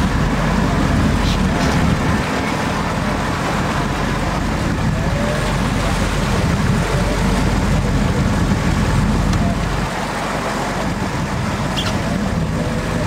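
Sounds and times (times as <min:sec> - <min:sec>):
boat engine rumbling: 0:00.0 - 0:13.0.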